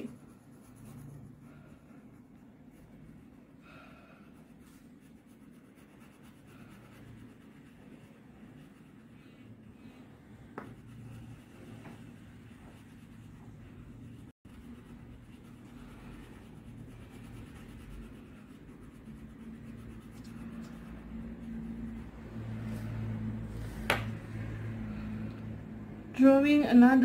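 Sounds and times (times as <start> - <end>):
crayon scribbling on paper: 0.0 - 3.5, 4.2 - 22.1
low steady hum: 0.0 - 27.0.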